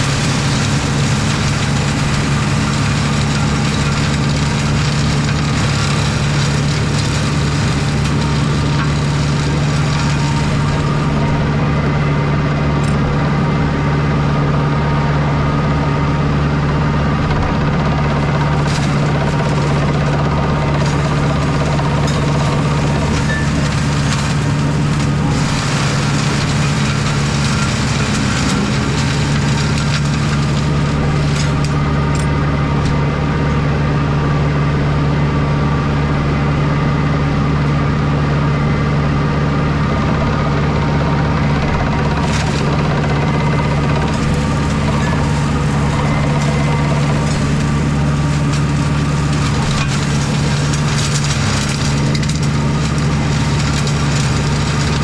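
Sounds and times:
mulcher shredding brambles: 0.0 - 55.0
tractor engine running: 0.0 - 55.0
woody canes cracking: 41.7 - 55.0.

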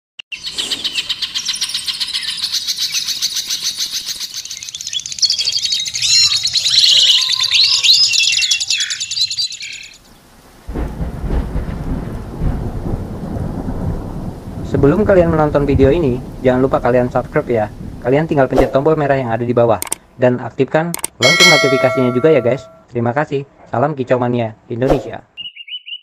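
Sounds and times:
songbirds singing trills: 0.3 - 10.3, 25.4 - 26.0.

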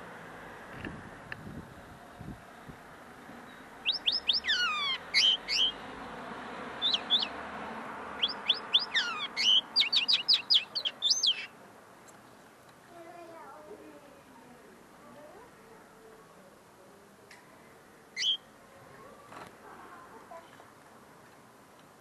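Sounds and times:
linnet twittering song: 3.5 - 5.8, 6.8 - 7.4, 8.2 - 11.6, 18.2 - 18.5.

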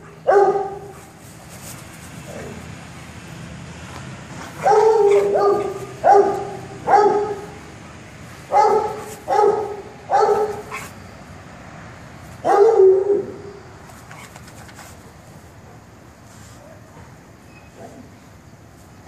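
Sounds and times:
dog play-barking: 0.0 - 1.1, 4.6 - 7.6, 8.5 - 11.0, 12.4 - 13.5.

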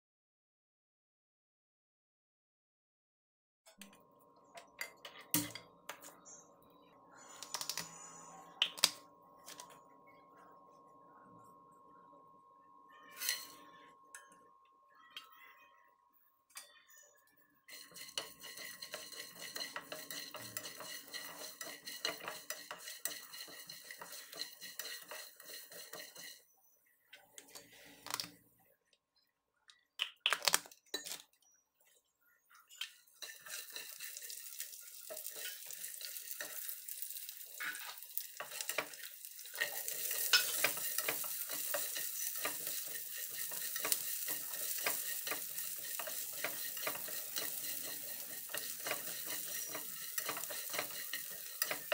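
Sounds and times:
spatula scraping seeds in a pan: 13.2 - 13.8, 17.7 - 26.6, 32.9 - 51.9
frying sizzle: 17.7 - 26.4, 32.8 - 51.9.

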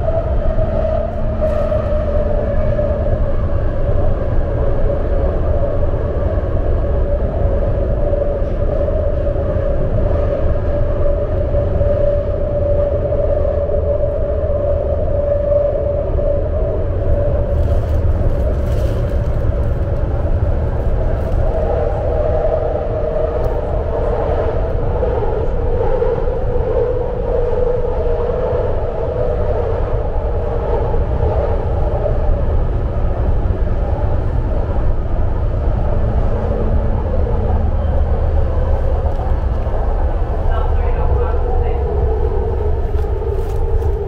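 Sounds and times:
train whining tone: 0.0 - 19.0
train deep rumble: 0.0 - 44.0.

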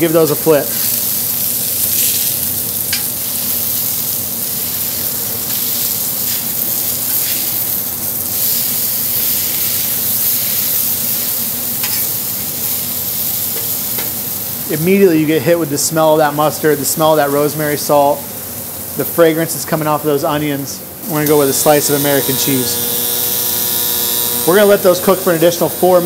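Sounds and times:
meat patties sizzling on griddle: 0.0 - 19.8, 21.0 - 26.0
metal spatula scraping griddle: 11.8 - 12.1.

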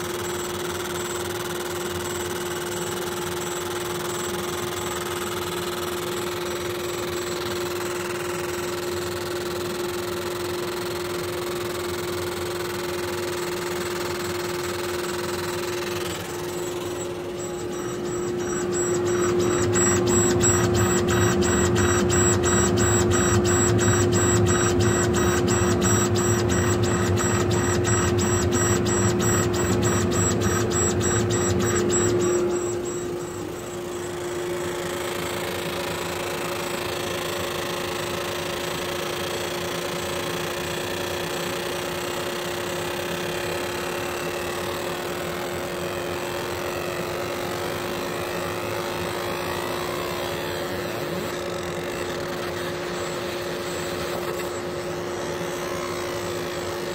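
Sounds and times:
fast rhythmic laser head clatter: 0.0 - 38.3
steady machine hum: 0.0 - 56.9.

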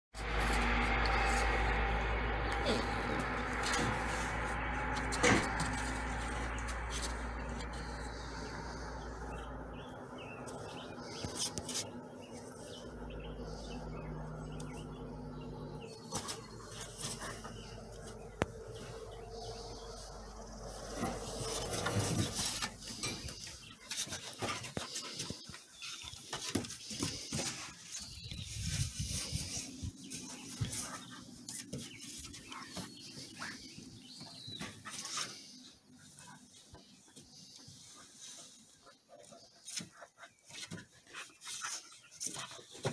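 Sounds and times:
puppies scuffling on wooden deck: 9.4 - 42.9.

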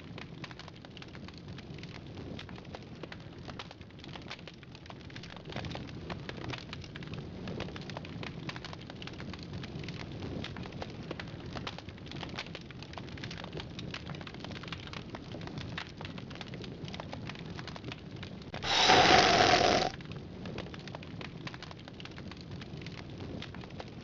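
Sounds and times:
bonfire crackling and popping: 0.0 - 18.6, 20.0 - 24.0
harsh burst of noise: 18.7 - 19.9.

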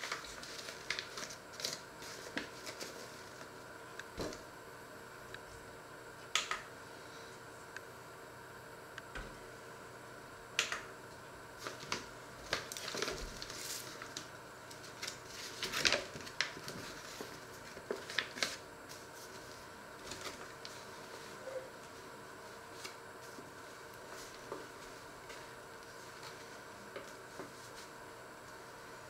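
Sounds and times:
paper bag crinkling: 0.0 - 3.5, 11.6 - 18.6.

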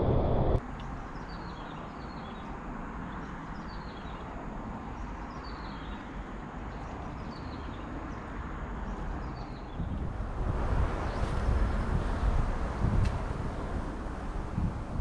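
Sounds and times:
wind on microphone: 0.0 - 0.6, 9.7 - 15.0.

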